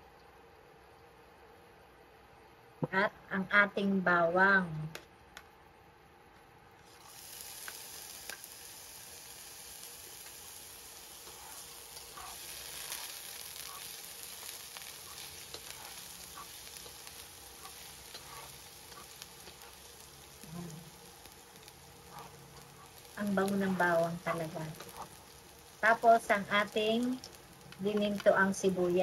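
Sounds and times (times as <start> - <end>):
garlic sizzling in hot oil: 6.8 - 29.0
metal turner scraping a pan: 11.2 - 19.8.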